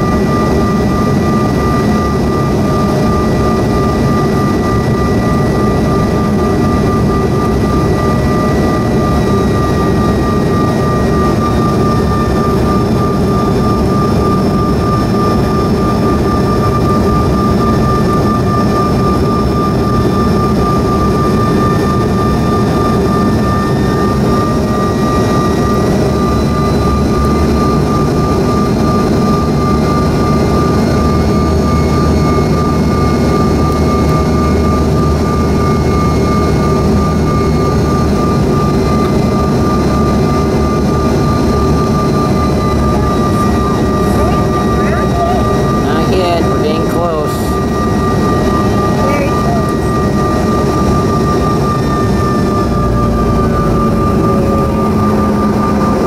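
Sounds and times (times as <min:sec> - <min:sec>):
jet turbofan whine: 0:00.0 - 0:56.0
higher tone slipping lower: 0:42.2 - 0:56.0.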